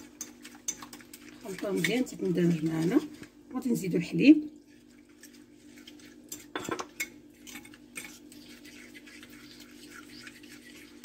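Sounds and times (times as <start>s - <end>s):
spoon scraping ceramic dish: 5.2s - 11.0s.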